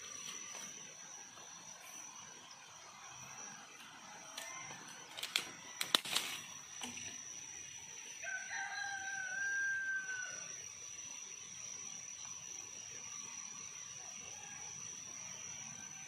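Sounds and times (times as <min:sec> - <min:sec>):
steady high-pitched whine: 0:00.0 - 0:16.0
rooster crowing: 0:03.6 - 0:05.0, 0:08.2 - 0:10.6.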